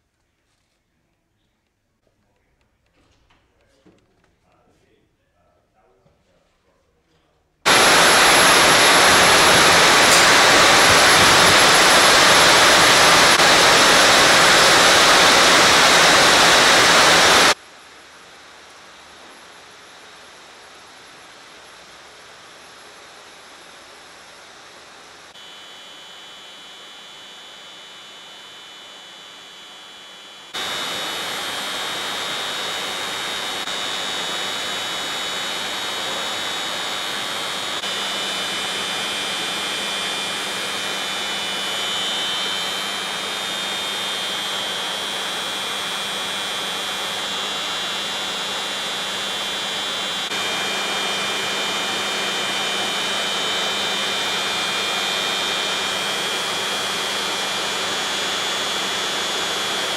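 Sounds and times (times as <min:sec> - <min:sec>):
factory machinery running: 0:07.7 - 0:17.6.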